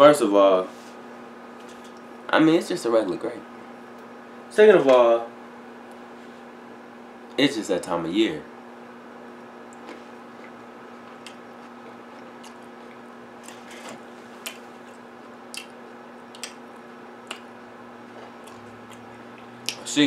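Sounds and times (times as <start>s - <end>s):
low room hum: 0.0s - 20.0s
person chewing grapes: 9.4s - 19.9s.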